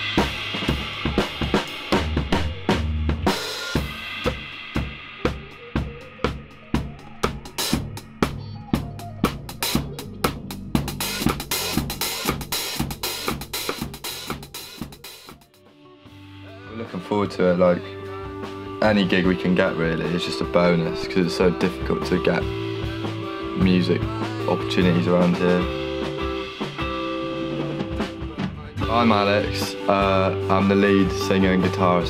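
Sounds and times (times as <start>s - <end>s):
drum kit beat: 0.0s - 32.0s
indie rock band playing: 0.0s - 32.0s.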